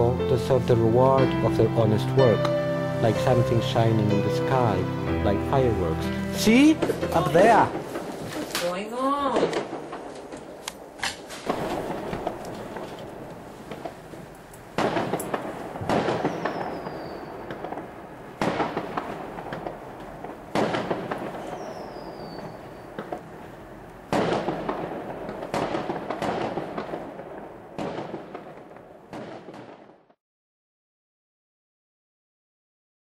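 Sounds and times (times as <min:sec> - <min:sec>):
fireworks crackling: 0:02.2 - 0:30.1
fireworks bangs: 0:05.4 - 0:30.2
falling firework whistle: 0:15.9 - 0:17.6, 0:21.3 - 0:22.9.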